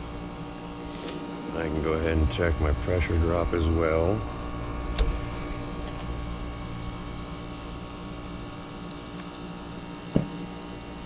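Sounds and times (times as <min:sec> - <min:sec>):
heat pump humming: 0:00.0 - 0:11.0
short knock: 0:10.1 - 0:10.3.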